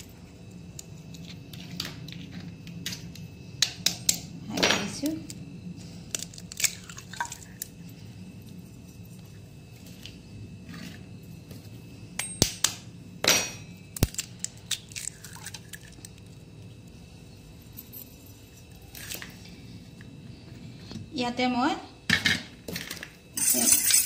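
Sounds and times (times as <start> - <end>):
egg cracking on metal bowl: 6.1 - 7.7, 12.2 - 16.4.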